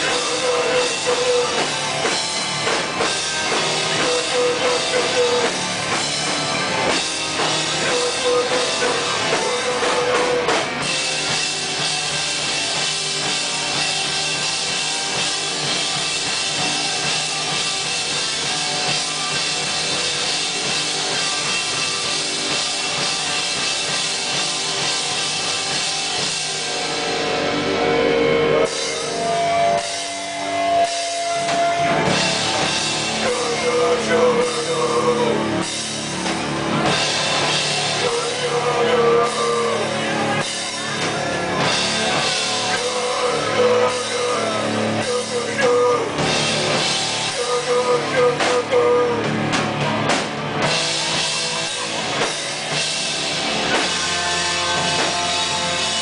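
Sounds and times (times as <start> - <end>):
distorted guitars: 0.0 - 56.0
drum kit: 0.0 - 56.0.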